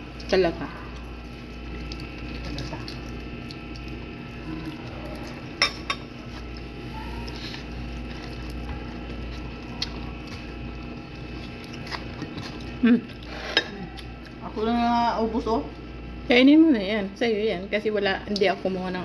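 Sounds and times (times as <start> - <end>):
person eating by hand: 0.0 - 14.5
steady background hum: 0.0 - 19.0.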